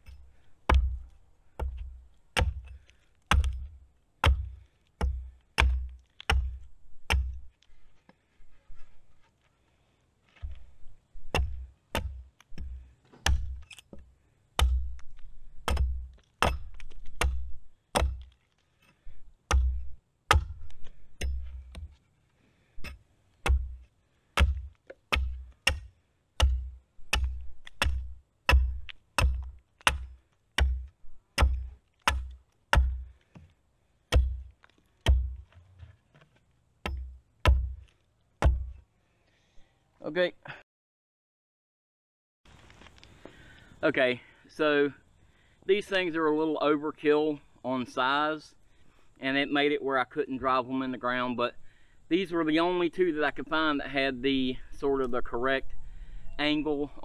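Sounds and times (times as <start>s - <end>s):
axe chopping wood: 0.0s - 7.5s, 11.2s - 18.4s, 19.5s - 21.9s, 22.8s - 33.5s, 34.1s - 35.6s, 36.8s - 38.8s.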